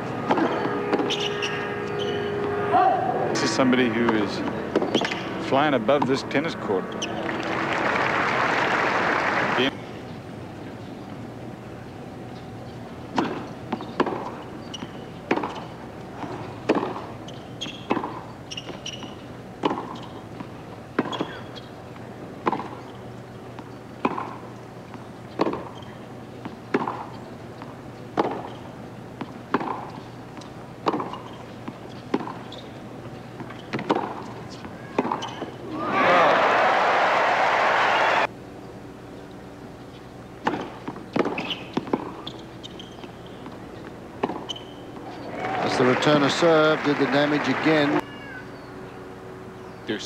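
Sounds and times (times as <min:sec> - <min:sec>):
tennis ball bouncing: 0:00.2 - 0:02.6, 0:04.0 - 0:07.6, 0:13.1 - 0:36.2, 0:39.9 - 0:45.4
tennis racket striking ball: 0:13.1 - 0:15.6, 0:16.2 - 0:17.1, 0:17.7 - 0:21.4, 0:22.4 - 0:22.9, 0:23.6 - 0:27.2, 0:28.1 - 0:28.6, 0:29.2 - 0:32.5, 0:33.4 - 0:35.5, 0:40.4 - 0:42.3, 0:44.2 - 0:44.7.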